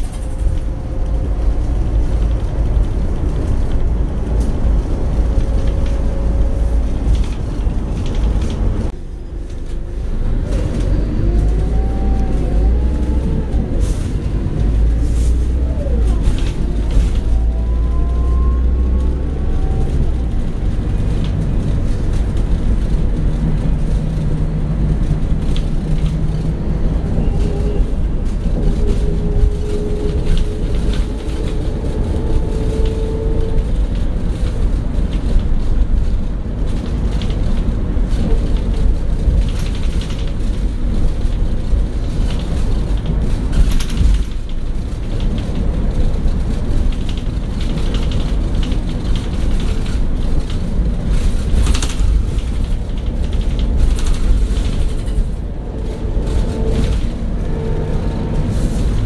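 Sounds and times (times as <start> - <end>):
bus engine and road rumble: 0.0 - 59.0.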